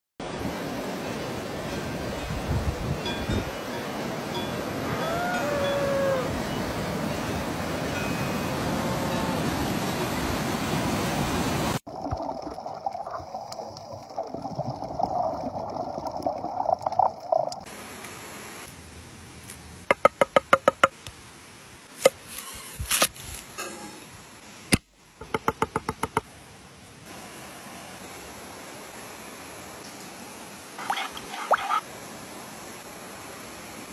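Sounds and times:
rushing river water: 0.2 - 18.6, 27.0 - 33.9.

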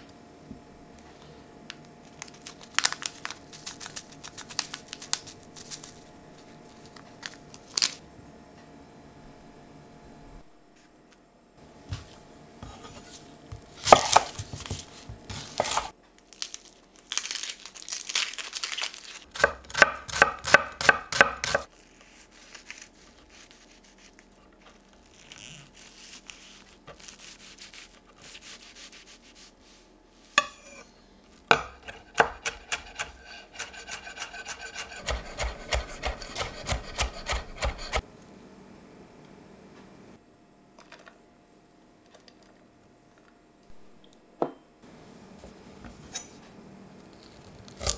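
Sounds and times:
knife chopping on wooden board: 11.9 - 15.9, 19.4 - 21.7, 31.5 - 38.0.

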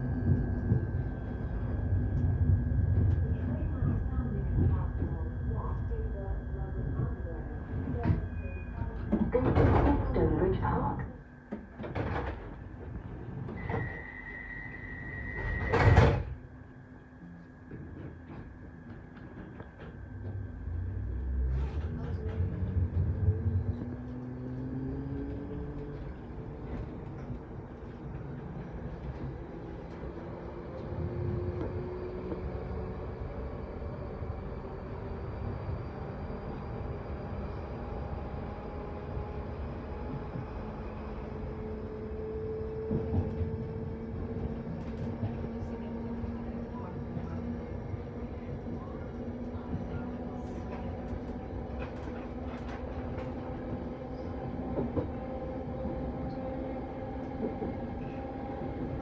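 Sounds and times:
train wheels rumbling on rail: 0.0 - 16.4, 17.6 - 59.0
train doors banging shut: 15.4 - 16.4.

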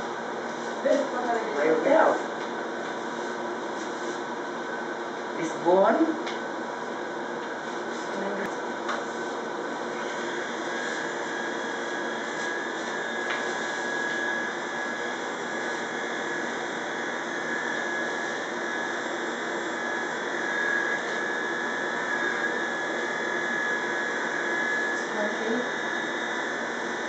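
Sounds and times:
electric hair clipper running: 10.0 - 27.0.

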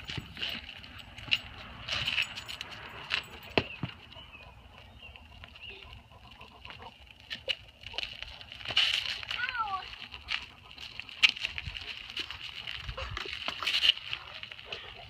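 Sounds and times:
light clicks and jingles: 0.0 - 5.5.

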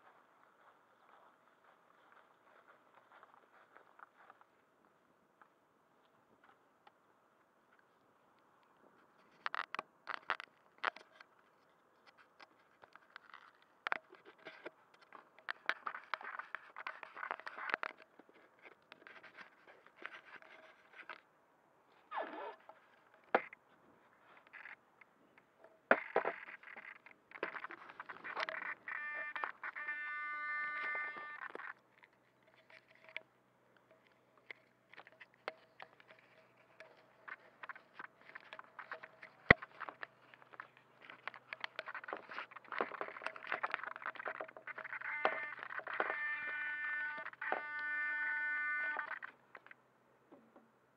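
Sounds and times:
fingers rubbing and tapping camera: 12.0 - 21.2, 25.9 - 33.2, 34.5 - 49.8.

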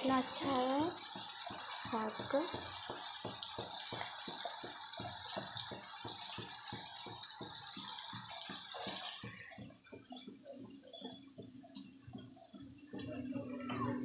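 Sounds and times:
greens sizzling in hot oil: 0.0 - 7.2.

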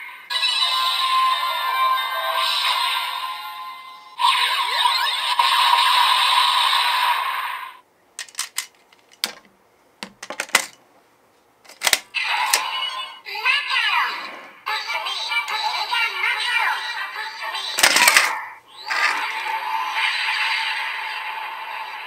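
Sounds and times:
electronic toy sound effects: 4.2 - 7.6, 12.1 - 22.0
plastic toy parts clicking: 8.2 - 10.8, 11.7 - 12.6, 17.7 - 19.2.

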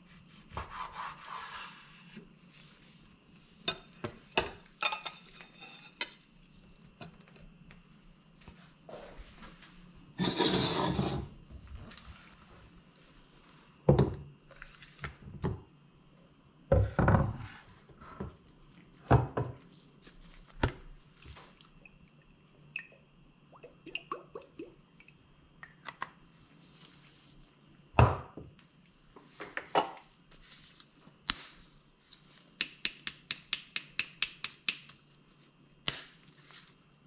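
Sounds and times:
kitchenware knocks and clunks: 16.7 - 17.4, 19.1 - 19.6, 28.0 - 28.5.

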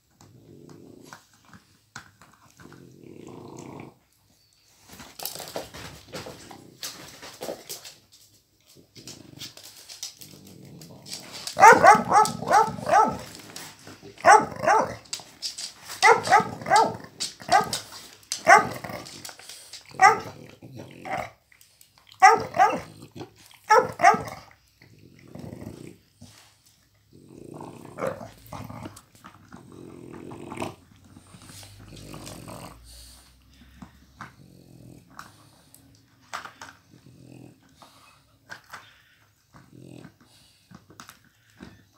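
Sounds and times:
dogs growling: 0.0 - 4.2, 8.7 - 21.4, 22.1 - 41.9
dogs barking: 11.6 - 13.4, 14.2 - 15.0, 16.0 - 18.8, 19.9 - 20.4, 22.2 - 22.9, 23.7 - 24.4.

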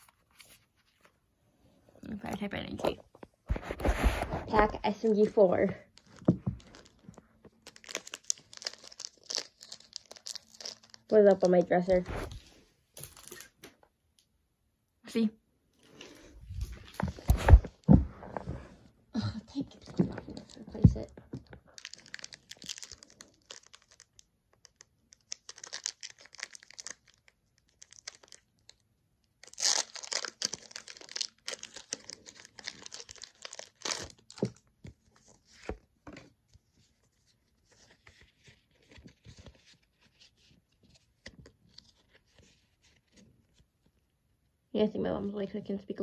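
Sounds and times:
foil wrapper tearing and crinkling: 6.0 - 11.7, 21.7 - 28.8, 29.4 - 34.6.

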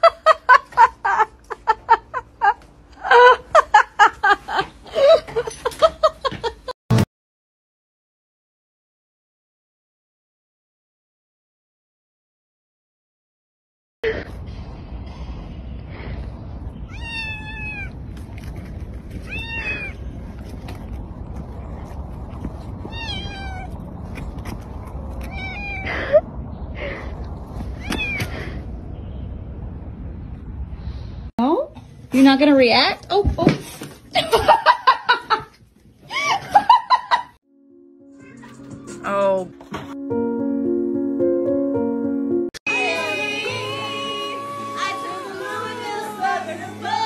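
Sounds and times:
person laughing hard: 0.0 - 6.7, 36.1 - 37.4
cat meowing: 16.8 - 18.0, 19.2 - 20.0, 22.9 - 23.8, 25.2 - 26.0, 27.8 - 28.3.

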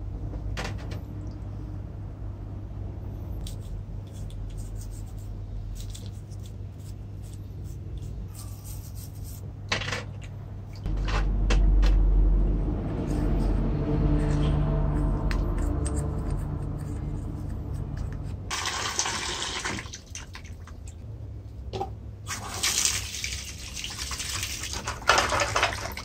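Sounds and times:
steady low hum: 0.0 - 18.6
low rumble: 10.8 - 18.5.

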